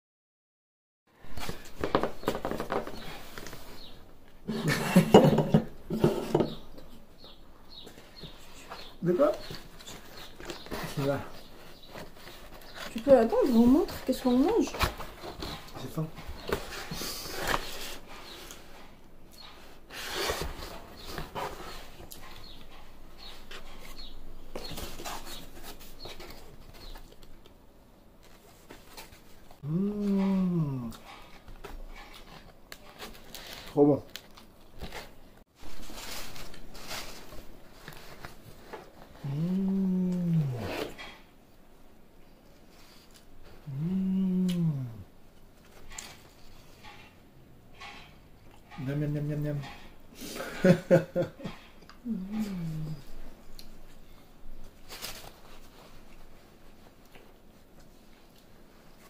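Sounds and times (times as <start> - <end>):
foam container rustling: 34.9 - 39.2.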